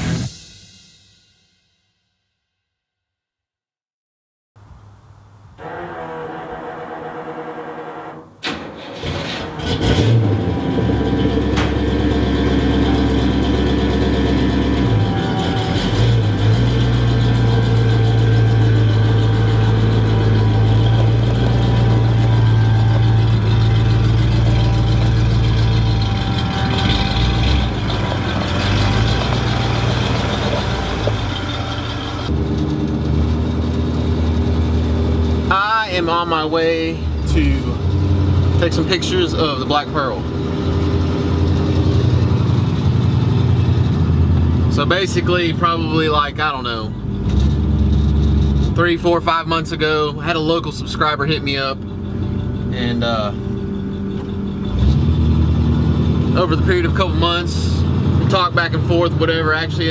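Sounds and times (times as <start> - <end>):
pickup engine starting and running: 4.6 - 59.9.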